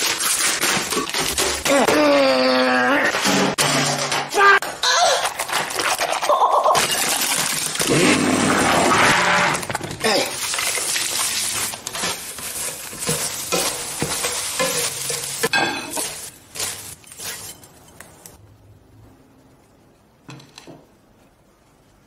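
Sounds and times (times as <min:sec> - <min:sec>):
spatula scraping a pan: 0:11.3 - 0:18.0.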